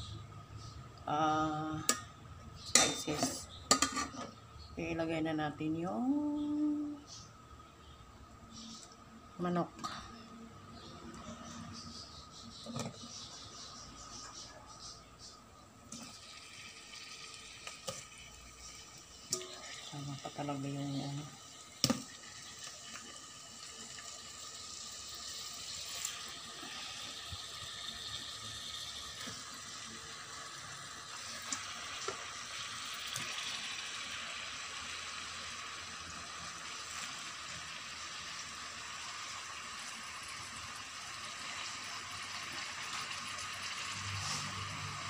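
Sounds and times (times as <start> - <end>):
food sizzling in oil: 15.9 - 45.0.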